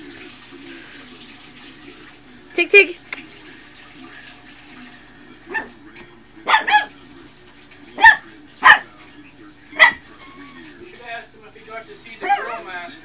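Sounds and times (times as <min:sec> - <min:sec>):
puppy yapping: 0:06.4 - 0:06.9, 0:08.0 - 0:08.9, 0:09.8 - 0:10.0, 0:12.2 - 0:12.7.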